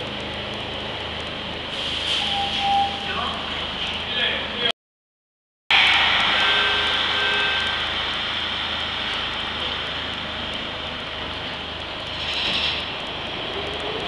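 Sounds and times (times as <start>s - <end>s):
subway train rushing: 0.1s - 4.7s, 5.7s - 14.0s
low hum: 5.7s - 11.6s.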